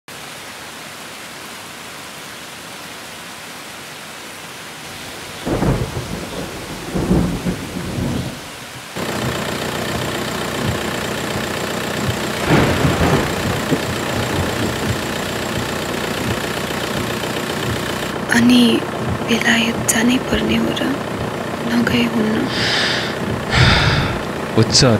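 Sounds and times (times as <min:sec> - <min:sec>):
steady rain falling: 0:00.1 - 0:24.9
thunder rolling: 0:05.1 - 0:24.9.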